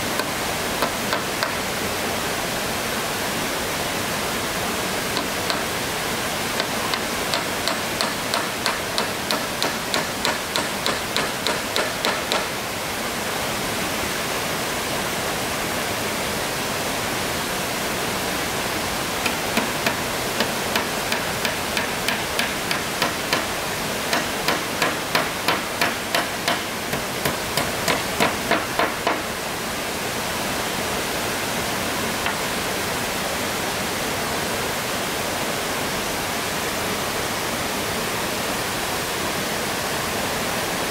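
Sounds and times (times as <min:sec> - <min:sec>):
water flowing: 0:00.0 - 0:33.5
hammer driving nails into wood: 0:06.6 - 0:12.5, 0:19.2 - 0:23.5, 0:24.1 - 0:29.2.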